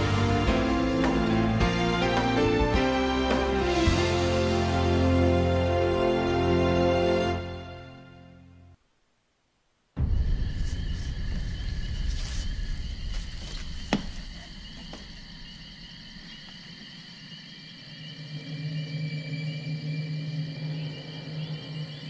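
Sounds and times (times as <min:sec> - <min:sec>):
deep rumble: 0:10.0 - 0:16.1
crickets chirping: 0:10.0 - 0:22.0.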